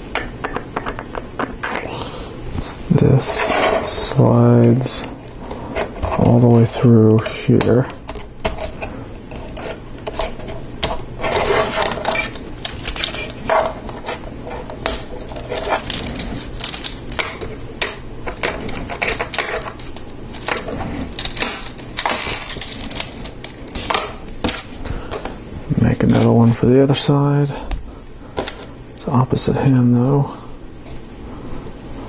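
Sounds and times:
plastic rustling: 8.6 - 25.4
plastic parts clicking: 9.4 - 24.6.

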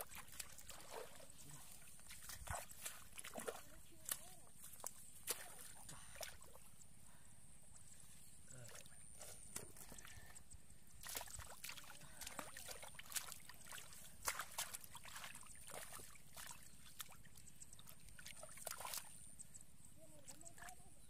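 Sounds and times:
hands splashing in muddy puddle: 0.0 - 6.6, 11.0 - 19.2.

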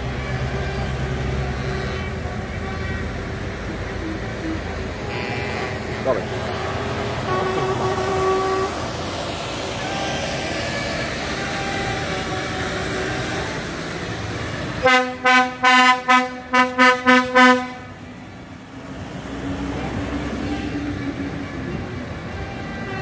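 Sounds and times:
vehicles driving past: 0.0 - 23.0
vehicle horn short toots: 3.9 - 8.8, 14.8 - 18.0.

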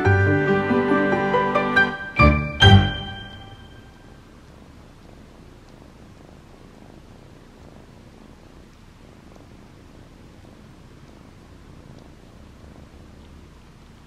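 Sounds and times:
kitten purring: 4.0 - 14.0
faint licking ticks: 4.5 - 5.9, 8.5 - 9.6, 10.4 - 14.0.

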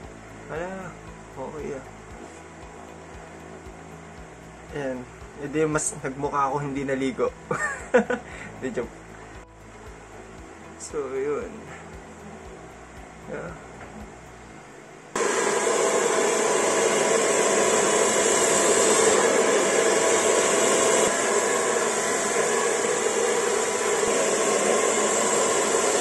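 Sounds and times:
hair dryer blowing: 15.1 - 26.0.

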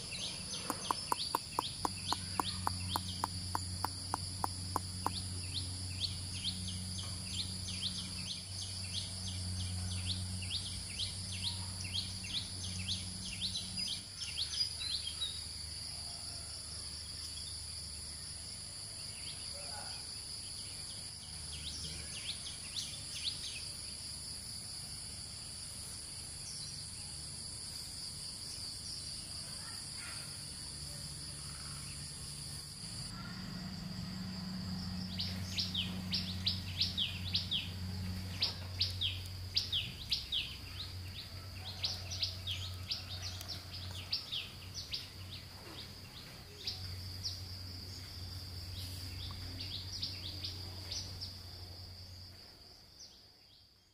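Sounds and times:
insects droning high-pitched: 0.0 - 53.9
clicking chirps: 0.5 - 5.2.

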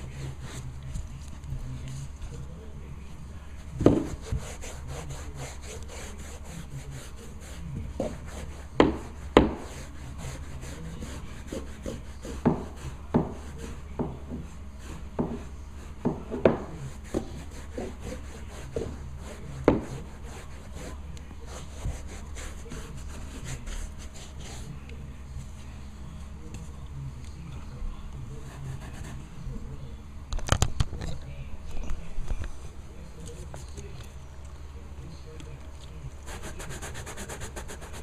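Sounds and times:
brush scrubbing carpet: 0.0 - 2.1, 3.6 - 24.9, 28.4 - 29.4, 36.2 - 38.0.

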